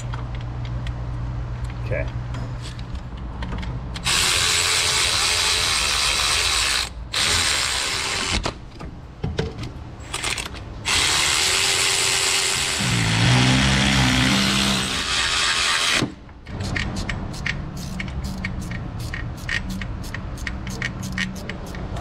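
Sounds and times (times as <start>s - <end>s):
electric ratchet running: 4.0s - 8.5s, 10.2s - 16.2s, 17.3s - 21.8s.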